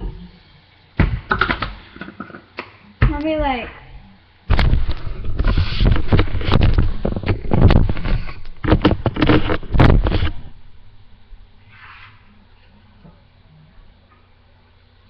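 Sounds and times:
microphone handling rumble: 4.5 - 10.6.

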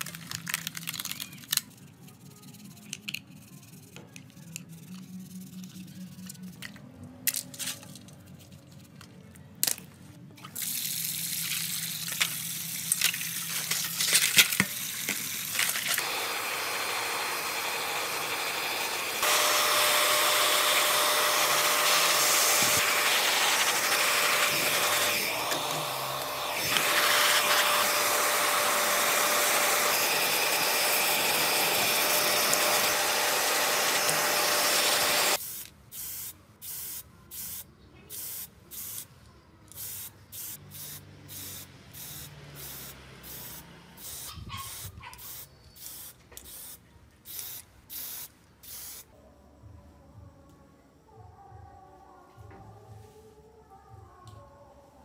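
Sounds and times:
hair dryer blowing with whine: 16.0 - 35.4
spray can hissing: 35.4 - 39.1, 39.7 - 49.1.

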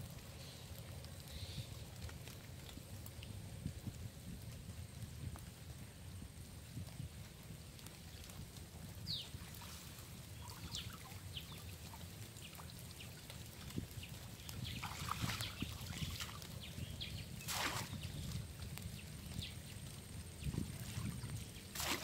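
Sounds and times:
water splashing and trickling: 0.0 - 22.0
small birds chirping: 9.0 - 21.8.

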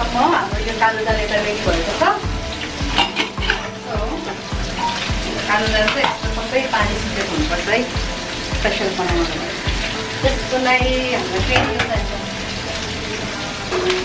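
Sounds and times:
cabbage sizzling in a wok: 0.0 - 14.0
background music with beat: 0.1 - 14.0.

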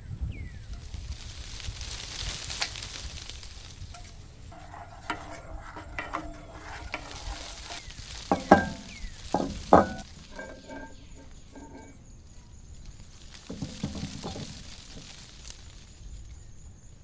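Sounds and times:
wooden spoon stirring: 3.9 - 12.0, 13.0 - 15.8
sauce sizzling in a frying pan: 6.6 - 10.4
cookware knocking on wooden table: 8.3 - 11.8.

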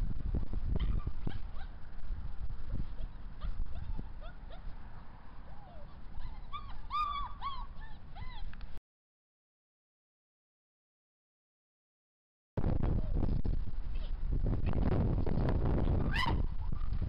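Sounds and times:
puppies yelping and whining: 0.8 - 1.8, 2.8 - 4.7, 5.5 - 8.5, 16.0 - 16.9.

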